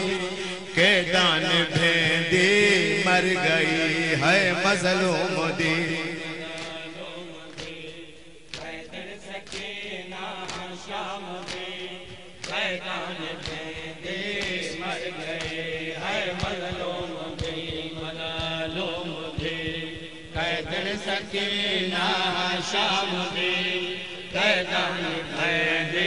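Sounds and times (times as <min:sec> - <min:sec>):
men chanting a lament: 0:00.0 - 0:26.0
chest-beating slaps: 0:06.4 - 0:09.8, 0:11.3 - 0:18.7.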